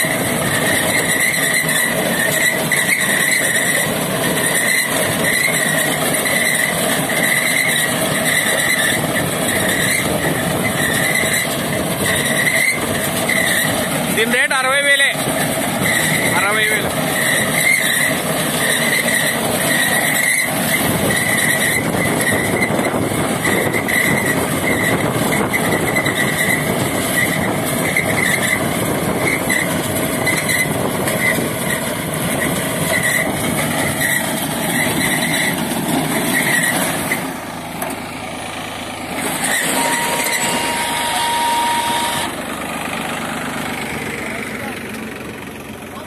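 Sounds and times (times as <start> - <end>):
high repeating squeak: 0.0 - 37.6, 39.2 - 42.4
tractor diesel engine under load: 0.0 - 46.0
short steady tone: 39.3 - 42.4.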